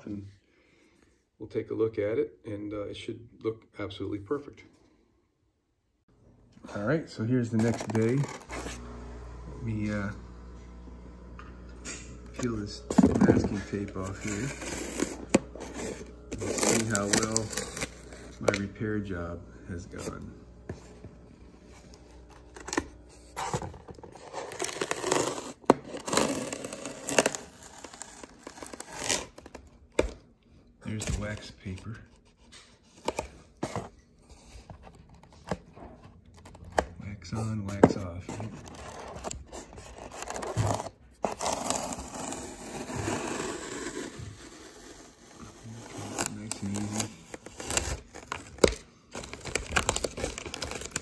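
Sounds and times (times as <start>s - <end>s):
masking tape tearing off: 7.5s - 8.8s, 12.3s - 19.1s, 21.9s - 29.8s, 40.0s - 51.0s
fingers rubbing foam: 13.4s - 19.0s.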